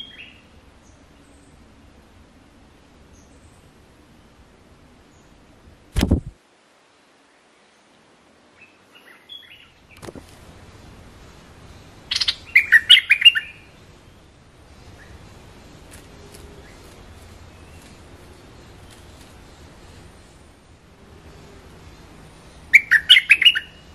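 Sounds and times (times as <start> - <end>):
loud thump: 6.0 - 6.4
bulbul calls: 11.8 - 13.8, 21.4 - 23.9.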